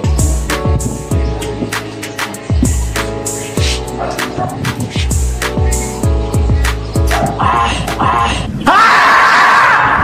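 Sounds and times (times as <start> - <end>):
deep bass kicks: 2.5 - 3.8.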